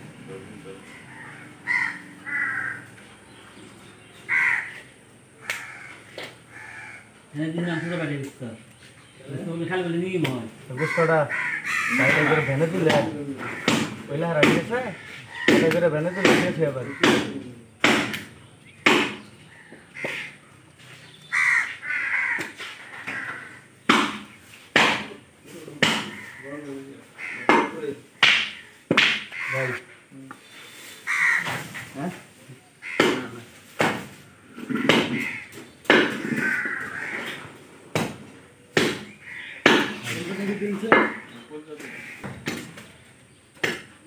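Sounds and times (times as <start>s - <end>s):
crow cawing: 0.7s - 3.1s, 4.2s - 8.6s, 10.7s - 18.1s, 18.9s - 25.1s, 25.8s - 32.2s, 32.8s - 38.2s, 38.8s - 42.8s
sharp knock: 12.8s - 14.7s, 15.4s - 19.2s, 23.9s - 25.2s, 27.5s - 29.3s, 38.8s - 40.1s.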